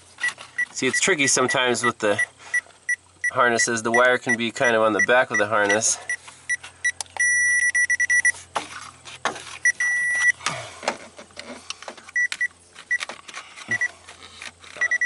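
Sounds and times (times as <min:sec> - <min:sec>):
high-pitched electronic beeping: 0:02.9 - 0:08.4, 0:09.6 - 0:10.4
clicks and scrapes of handling: 0:08.4 - 0:15.0.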